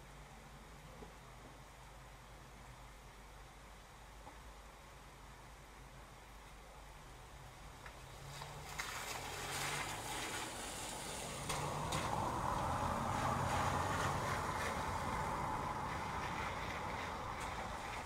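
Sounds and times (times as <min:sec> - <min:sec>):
steady rain: 0:00.0 - 0:18.0
tyres hissing on wet street: 0:07.1 - 0:18.0.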